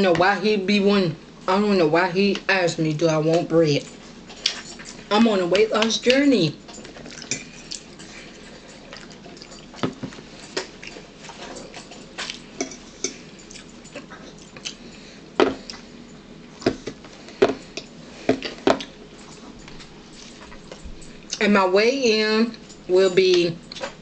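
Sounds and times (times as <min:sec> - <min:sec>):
chewing and lip-smacking: 0:06.8 - 0:09.8, 0:10.4 - 0:12.5, 0:13.4 - 0:14.8.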